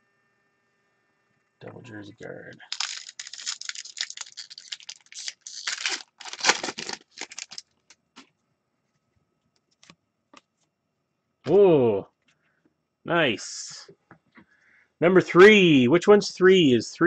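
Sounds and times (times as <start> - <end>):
foil wrapper tearing and crinkling: 2.6 - 7.7.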